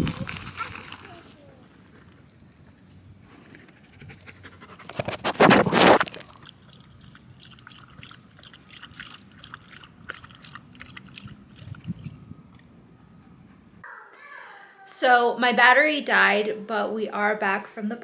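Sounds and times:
dog lapping water: 4.8 - 12.7.

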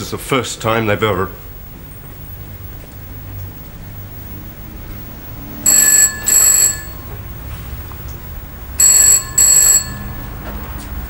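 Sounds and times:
telephone bell ringing: 5.6 - 7.2, 8.8 - 10.5.

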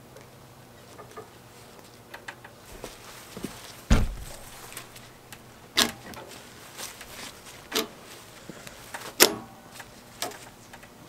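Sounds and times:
sharp plastic clacks on metal tube: 8.9 - 10.9.

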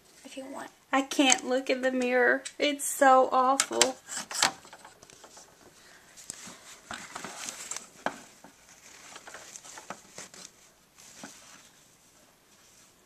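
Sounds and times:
soft rustling: 4.0 - 13.0.

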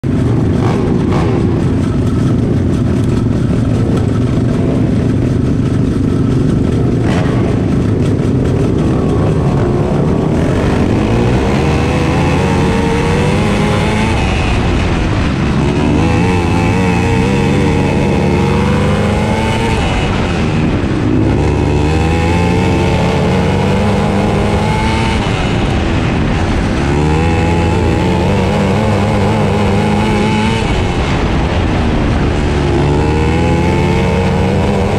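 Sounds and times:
kart engine revving: 0.0 - 34.9.

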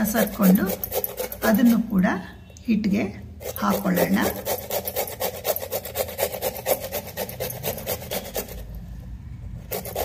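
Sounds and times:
grater rasping: 0.0 - 1.9, 3.4 - 8.8, 9.7 - 10.0.

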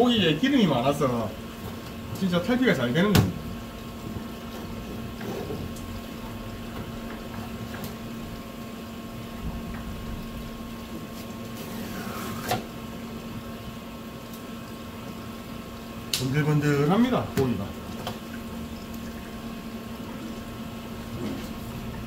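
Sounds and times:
steady machine hum: 0.0 - 22.0.

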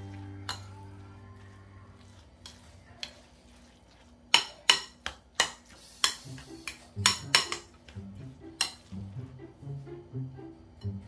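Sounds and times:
soft background music: 0.0 - 3.7, 6.2 - 11.0.

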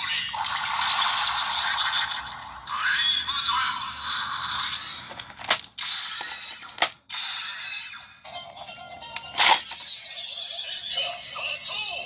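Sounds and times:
sharp plastic clicks: 5.1 - 7.0
electronic toy music from small speaker: 5.9 - 12.0.

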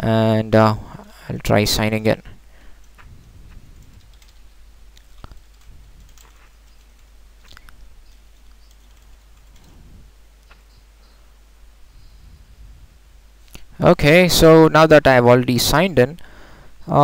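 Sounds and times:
computer keyboard typing: 2.8 - 9.8.

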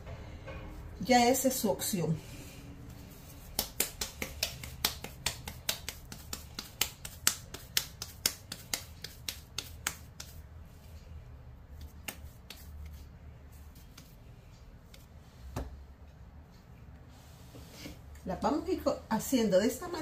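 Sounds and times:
hands patting dough: 2.9 - 14.2, 14.8 - 15.8.

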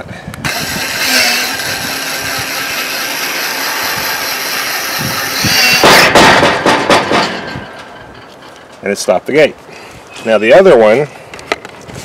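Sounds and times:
gate opener motor running: 0.4 - 6.1
gate bar clattering: 2.6 - 8.9.

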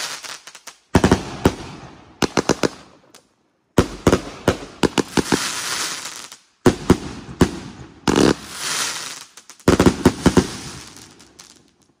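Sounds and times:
crackling hiss of firework stars: 0.0 - 12.0
firework bangs: 3.8 - 11.8.

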